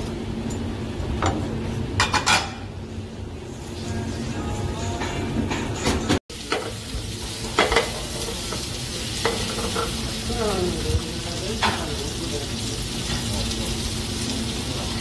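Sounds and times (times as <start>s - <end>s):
food sizzling in a frying pan: 6.3s - 15.0s.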